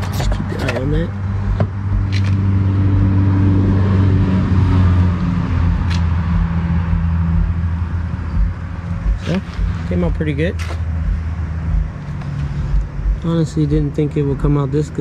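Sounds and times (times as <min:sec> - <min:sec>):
vehicle engine idling: 0:05.7 - 0:15.0.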